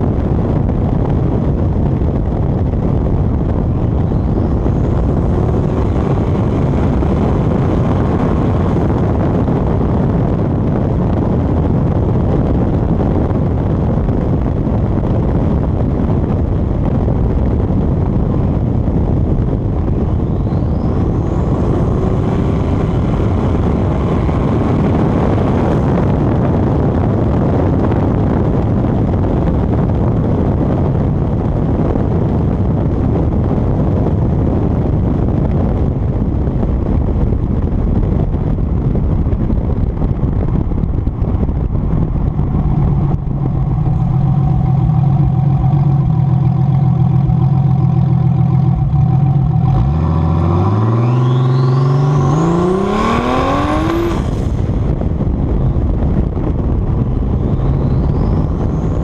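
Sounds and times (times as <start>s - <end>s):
car engine driving: 0.0s - 59.0s
wind and road noise: 0.0s - 59.0s
faint rising whine: 0.6s - 10.4s, 15.8s - 27.0s, 37.2s - 59.0s.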